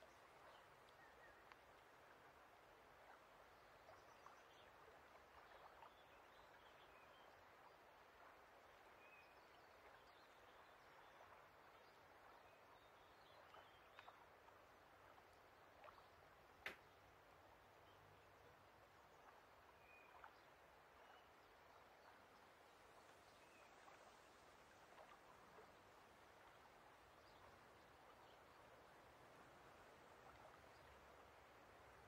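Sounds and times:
light ticks: 0:00.8 - 0:01.9.

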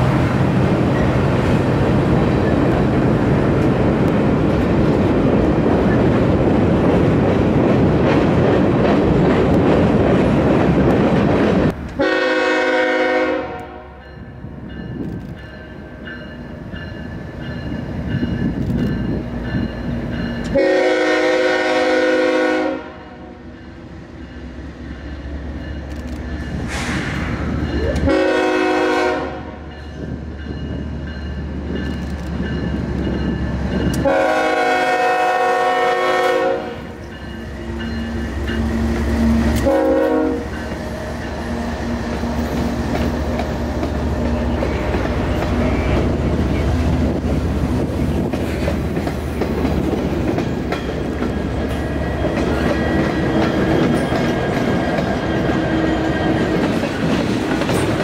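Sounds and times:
freight train rumbling and rattling: 0:00.0 - 0:58.0
locomotive air horn blasts: 0:12.0 - 0:14.0, 0:20.5 - 0:23.4, 0:28.0 - 0:29.6, 0:34.0 - 0:37.0, 0:39.2 - 0:40.6.

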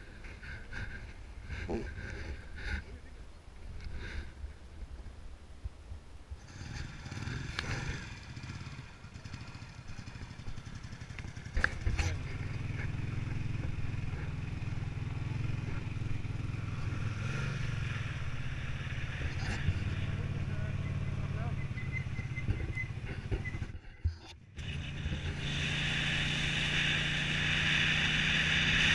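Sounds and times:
motorcycle engine running: 0:06.4 - 0:28.9.

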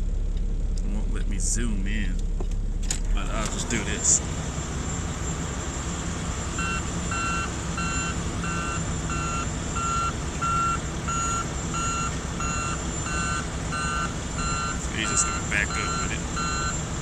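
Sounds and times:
low engine rumble: 0:00.0 - 0:17.0
backup alarm beeping: 0:04.9 - 0:17.0.

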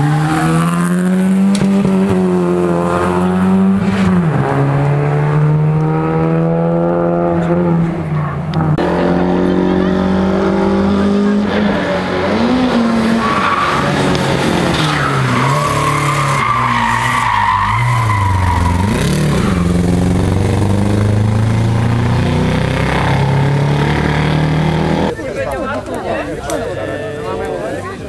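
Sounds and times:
rally car engine revving: 0:00.0 - 0:25.1
tyres squealing: 0:13.1 - 0:20.2.

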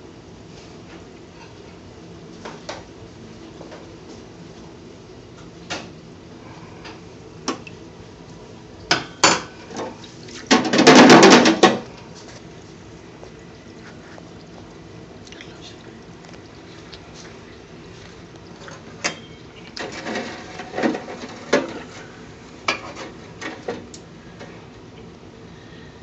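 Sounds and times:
metal fryer basket clattering: 0:08.9 - 0:12.0, 0:18.7 - 0:22.1.

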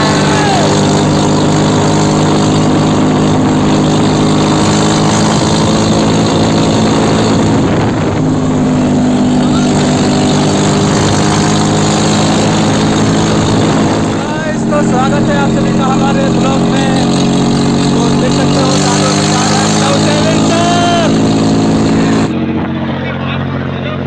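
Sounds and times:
tractor diesel engine running: 0:00.0 - 0:24.0.

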